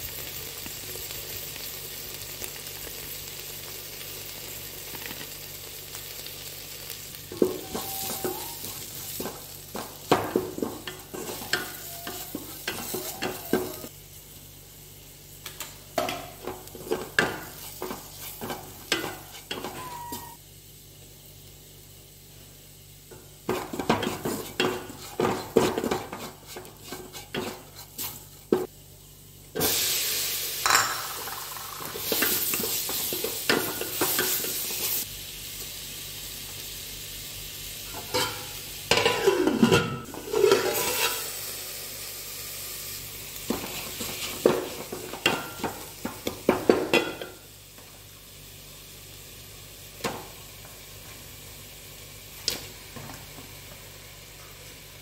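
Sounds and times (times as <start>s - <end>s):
food sizzling: 0.0s - 55.0s
spatula scraping metal pot: 40.2s - 41.2s.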